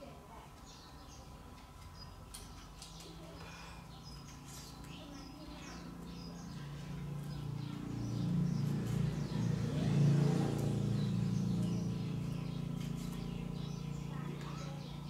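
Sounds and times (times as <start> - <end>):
passing vehicle engine: 5.5 - 15.0.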